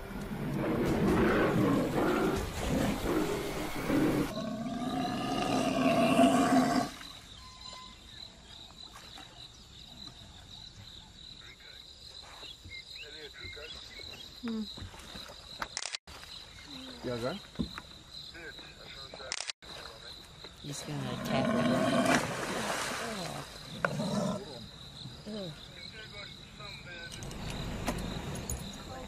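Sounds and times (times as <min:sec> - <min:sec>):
animal roaring and growling: 0:00.3 - 0:07.0, 0:21.2 - 0:22.3, 0:23.0 - 0:24.6
faint splashes or rustles: 0:22.1 - 0:23.7.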